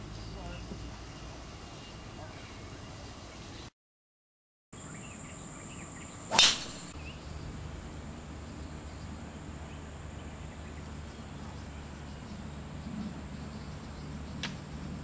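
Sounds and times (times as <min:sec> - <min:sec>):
golf club swish and crack: 0:06.3 - 0:07.0.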